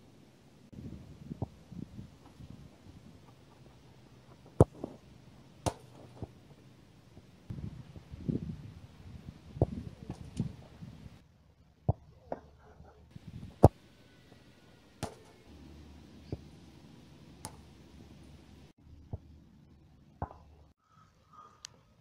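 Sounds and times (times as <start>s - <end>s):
football kicks: 3.2s - 6.4s, 15.0s - 15.4s.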